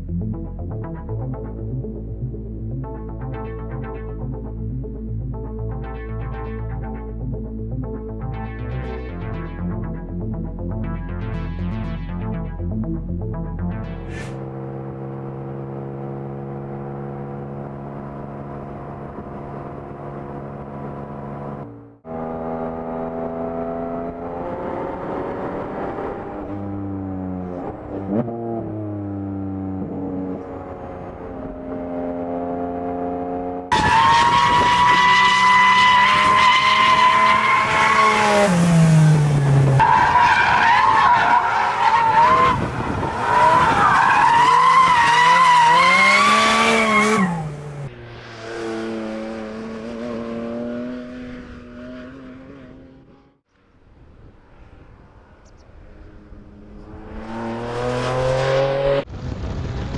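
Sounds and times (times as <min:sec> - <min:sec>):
car engine revving: 0:13.8 - 0:53.4, 0:55.9 - 0:59.9.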